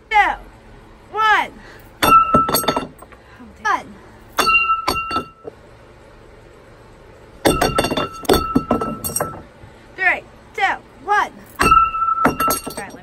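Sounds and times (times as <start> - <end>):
plate clattering on wooden boards: 2.0 - 3.0, 7.5 - 9.5, 11.6 - 13.0.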